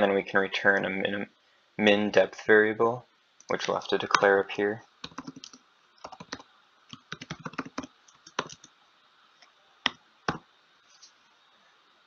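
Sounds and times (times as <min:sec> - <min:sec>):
computer keyboard typing: 0:05.0 - 0:08.7.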